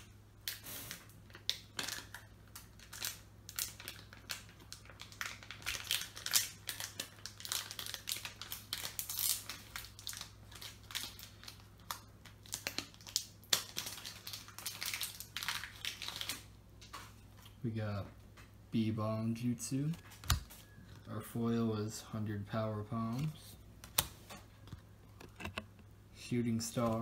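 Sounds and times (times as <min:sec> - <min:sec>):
foil wrapper crinkling: 0:00.0 - 0:17.6.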